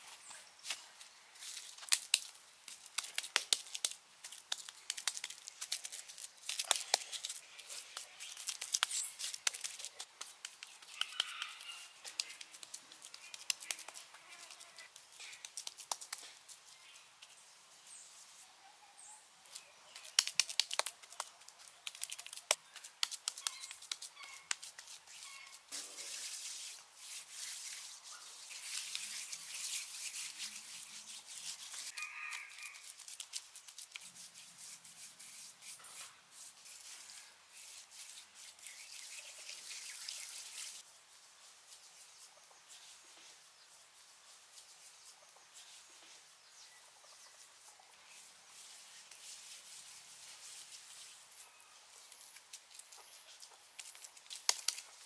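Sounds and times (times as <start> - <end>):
hand scrubbing wet mud plaster: 1.8 - 16.2, 20.0 - 31.9, 32.6 - 40.9, 48.2 - 51.2.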